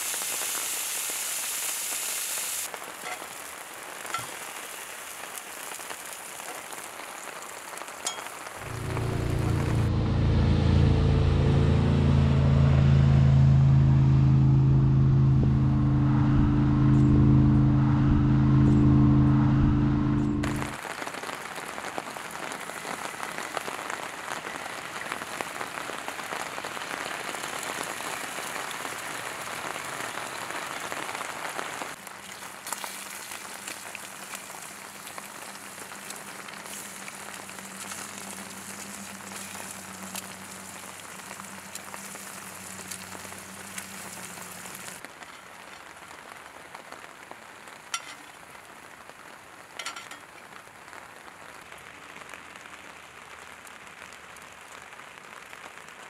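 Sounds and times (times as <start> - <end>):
eggs sizzling in a skillet: 0.0 - 9.5, 31.9 - 46.0
low steady hum: 8.6 - 20.8.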